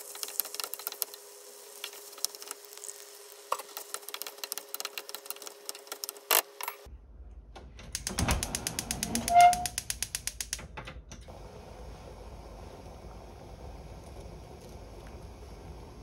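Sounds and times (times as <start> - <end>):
gas burner running: 0.0 - 6.7, 7.9 - 16.0
gas stove igniter clicking: 7.9 - 11.3.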